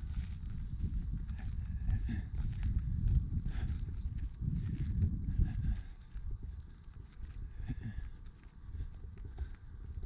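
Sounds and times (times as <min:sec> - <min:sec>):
footsteps on dry grass: 0:00.0 - 0:10.0
low microphone rumble: 0:00.0 - 0:10.0.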